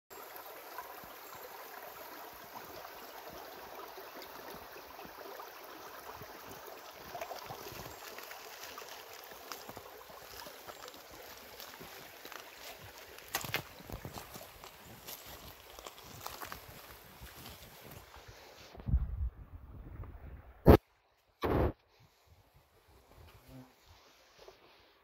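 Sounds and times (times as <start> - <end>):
creek flowing over rocks: 0.1 - 18.3.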